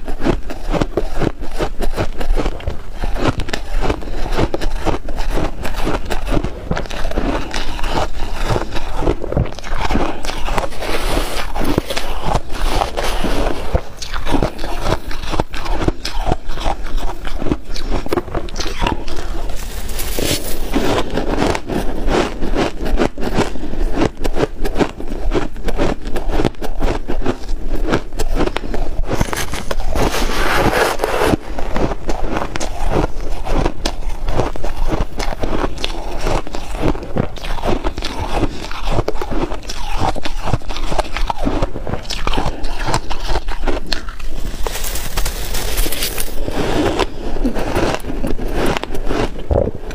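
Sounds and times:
ice being crunched in mouth: 0:00.0 - 0:49.9
spoon scraping shaved ice: 0:09.5 - 0:21.6, 0:28.6 - 0:37.0, 0:42.8 - 0:49.4.

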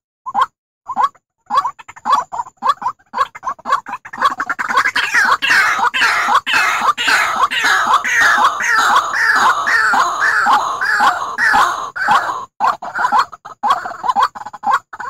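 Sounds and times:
harsh repeated bird call: 0:00.4 - 0:15.0.

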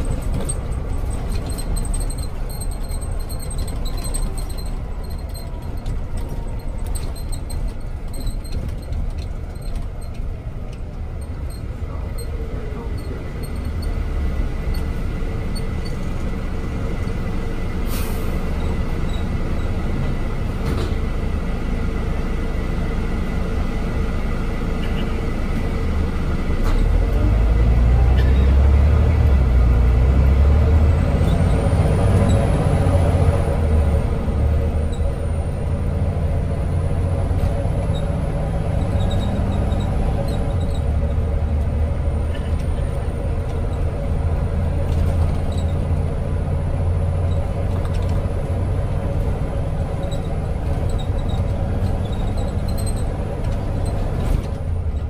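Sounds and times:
bus diesel engine rumbling: 0:00.0 - 0:55.0.

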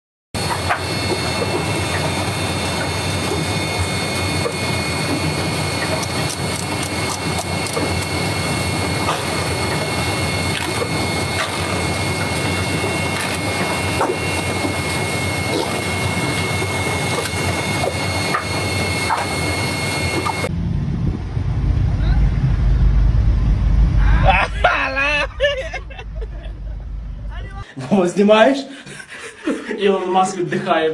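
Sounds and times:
assembly line machinery hissing: 0:00.4 - 0:20.5
high machine whine: 0:00.4 - 0:28.5.

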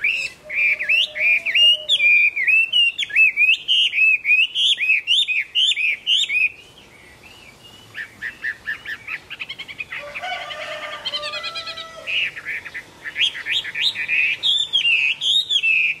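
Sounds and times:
bird singing ringing whistles: 0:00.0 - 0:06.7, 0:13.1 - 0:16.0.

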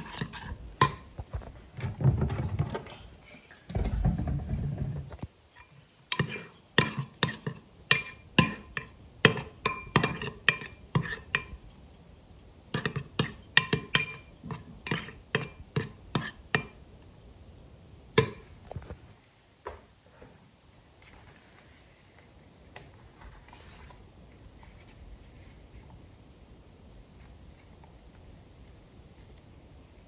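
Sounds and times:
metal spoon clinking on glass bowl: 0:00.0 - 0:01.3, 0:05.5 - 0:16.8, 0:18.2 - 0:19.2.

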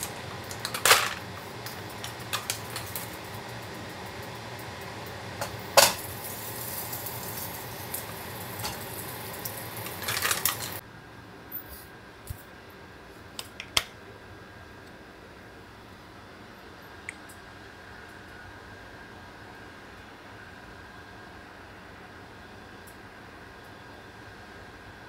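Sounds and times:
oil sizzling in frying pan: 0:00.0 - 0:10.8.

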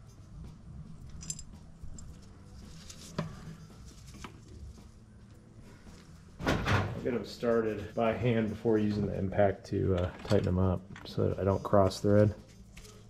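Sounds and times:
metal part clinking: 0:01.0 - 0:02.3, 0:09.9 - 0:11.1.

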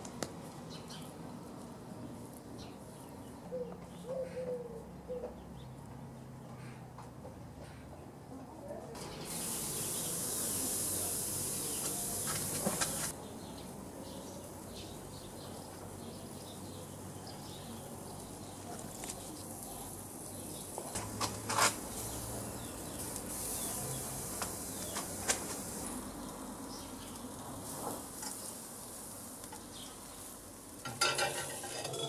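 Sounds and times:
sharp pops and crackles: 0:00.0 - 0:00.7, 0:11.8 - 0:13.2, 0:23.0 - 0:26.0
insects buzzing: 0:09.0 - 0:32.0
meat sizzling on a charcoal grill: 0:09.0 - 0:32.0.

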